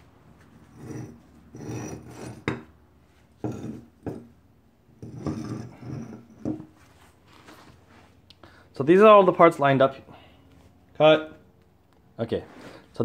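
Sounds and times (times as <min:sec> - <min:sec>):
metal parts scraping on concrete: 0:00.4 - 0:04.4, 0:05.0 - 0:06.8.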